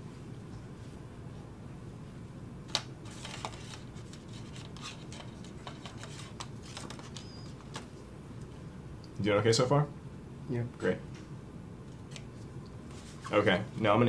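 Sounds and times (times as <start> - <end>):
low room hum: 0.0 - 14.0
gloved hands clicking and rustling: 2.7 - 8.5.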